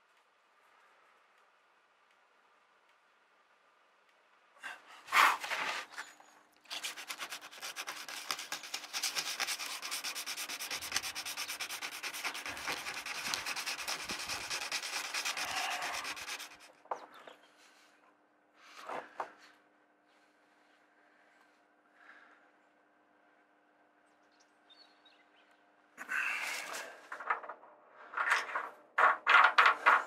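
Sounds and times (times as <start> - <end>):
hand sanding with sandpaper: 6.7 - 16.7
knock and clatter: 29.0 - 30.0.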